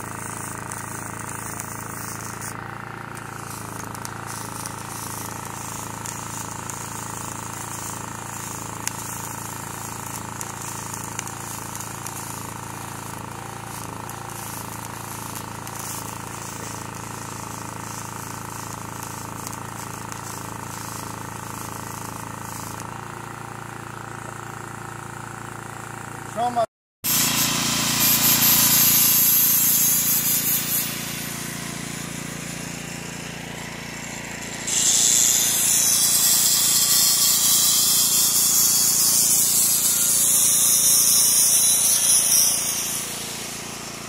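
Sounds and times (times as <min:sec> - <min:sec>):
welding arc crackling hiss: 0:00.0 - 0:44.0.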